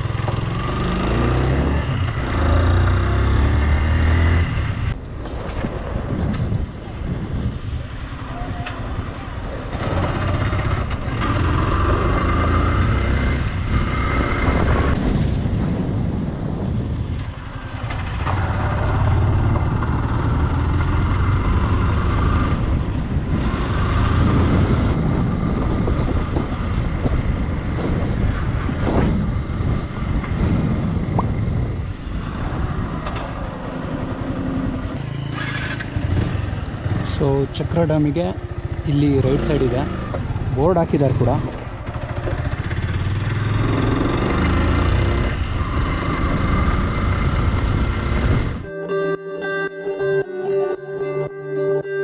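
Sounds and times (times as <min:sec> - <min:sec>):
wind and road noise: 0:00.0 - 0:48.8
motorcycle engine running: 0:16.9 - 0:48.7.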